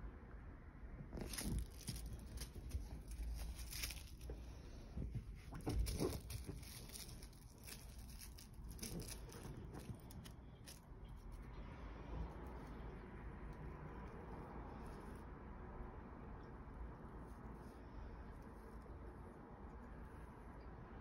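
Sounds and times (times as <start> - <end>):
sheet rustling: 1.1 - 10.9
tinsel toy rustling and crackling: 1.1 - 11.5.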